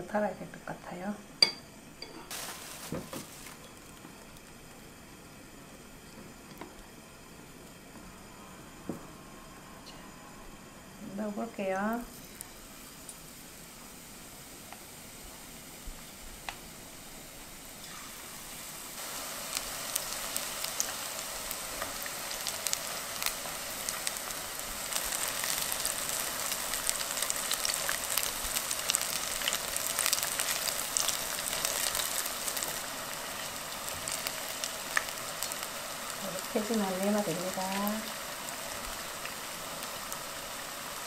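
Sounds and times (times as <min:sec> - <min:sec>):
deep-frying sizzle with crackling pops: 0:00.0 - 0:09.2, 0:10.9 - 0:41.0.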